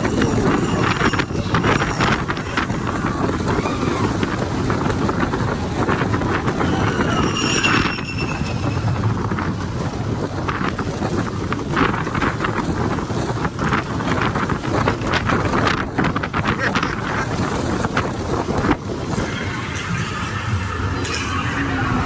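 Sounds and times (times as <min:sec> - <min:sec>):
high wavering squeal: 0:00.0 - 0:04.6, 0:06.2 - 0:10.0, 0:19.0 - 0:22.0
roller coaster clattering: 0:00.0 - 0:22.0
roller coaster rumbling on track: 0:00.0 - 0:22.0
wind buffeting microphone: 0:00.0 - 0:22.0.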